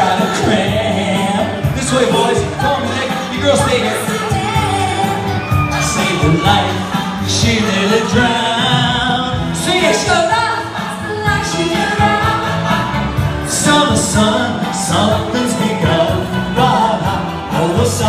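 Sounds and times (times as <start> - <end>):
person singing into microphone: 0.0 - 12.8
accompanying music: 0.0 - 18.0.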